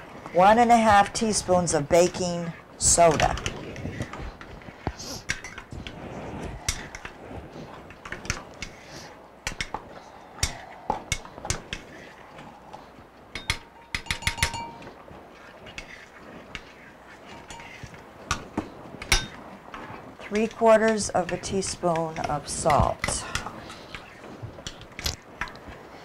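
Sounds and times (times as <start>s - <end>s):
spoon clinking against ceramic bowl: 13.4s - 14.9s, 17.3s - 17.9s.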